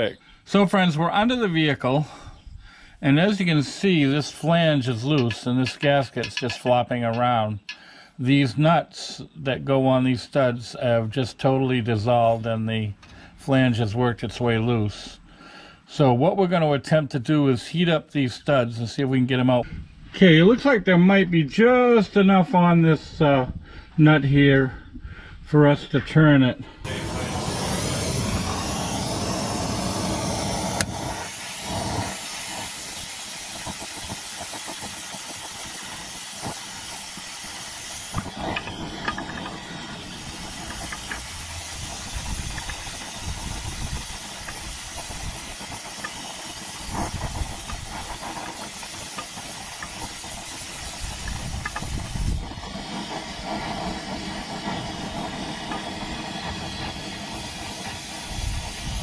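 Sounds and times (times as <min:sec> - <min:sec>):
gas torch flame hissing: 0:02.9 - 0:08.0, 0:26.8 - 0:59.0.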